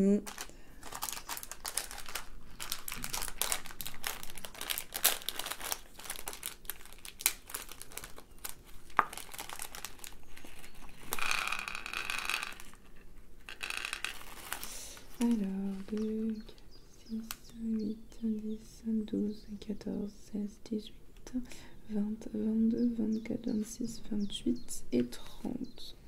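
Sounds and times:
plastic packet crinkling: 0.2s - 16.6s
beads spilling into a dish: 9.0s - 12.8s, 13.5s - 14.9s.

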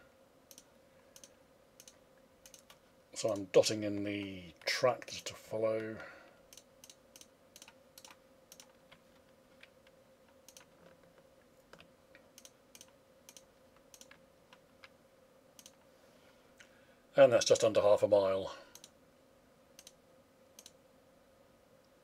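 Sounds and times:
faint steady hum: 0.0s - 22.0s
computer mouse clicks: 0.5s - 3.5s, 6.5s - 9.0s, 9.6s - 10.9s, 11.7s - 15.0s, 15.6s - 15.8s, 18.7s - 19.0s, 19.8s - 20.0s, 20.6s - 20.8s.

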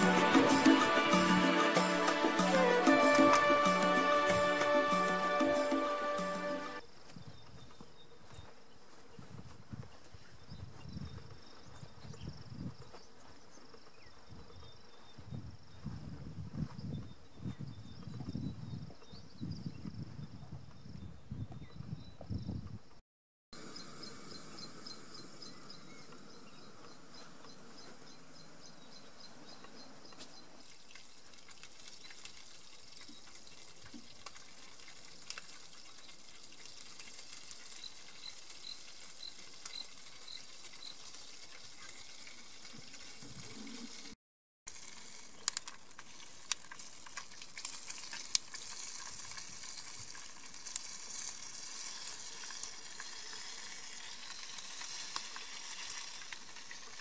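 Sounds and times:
sausage sizzling and crackling: 0.0s - 6.8s, 30.6s - 57.0s.

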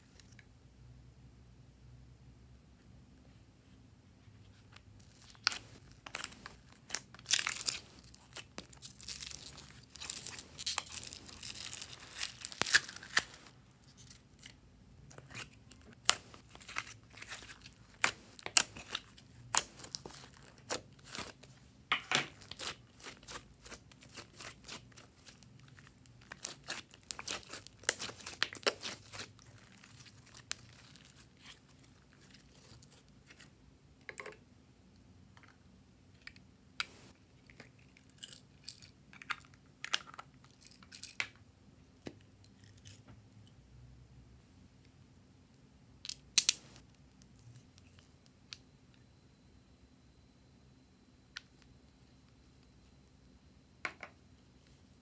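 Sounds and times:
slime crackling and tearing: 5.0s - 14.5s, 15.2s - 21.4s, 22.3s - 33.0s.

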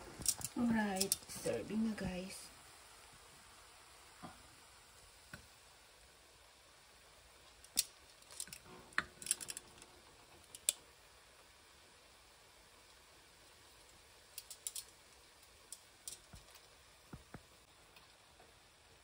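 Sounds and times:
metal tongs clicking on plate: 14.4s - 14.9s.

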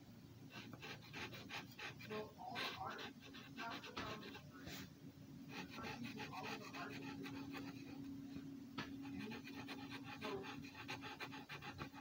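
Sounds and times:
steady low hum: 0.0s - 12.0s
marker scratching on paper: 0.5s - 4.9s, 5.5s - 8.1s, 8.8s - 12.0s.

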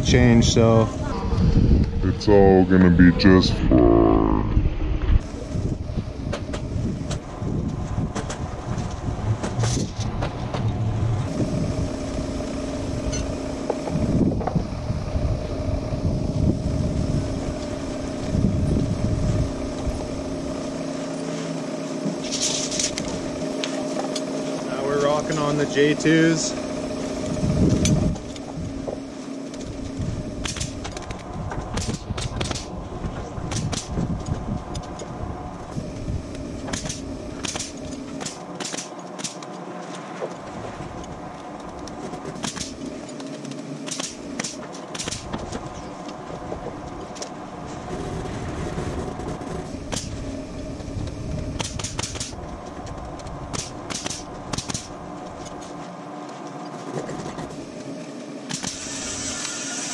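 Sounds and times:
steady mechanical hum: 0.0s - 59.9s
nail gun firing into wood: 30.4s - 30.8s, 31.7s - 32.7s, 33.5s - 34.0s, 36.7s - 39.4s, 42.4s - 42.8s, 43.8s - 45.4s, 49.9s - 50.1s, 51.6s - 52.4s, 53.5s - 54.9s, 58.5s - 59.0s.

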